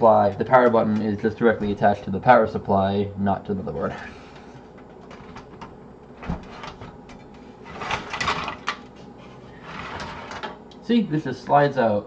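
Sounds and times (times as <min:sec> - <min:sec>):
metal scraping on metal: 0:09.2 - 0:10.5.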